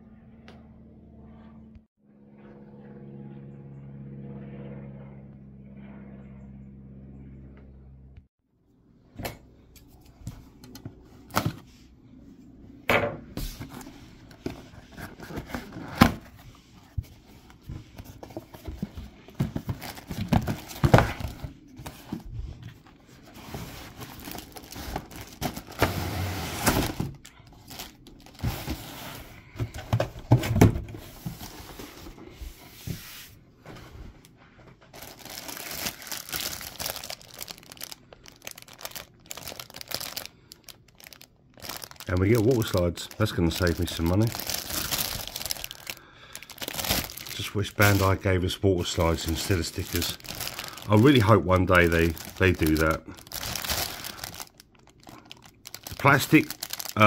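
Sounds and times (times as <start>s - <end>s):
cardboard box being opened: 13.4s - 32.2s, 46.4s - 48.1s.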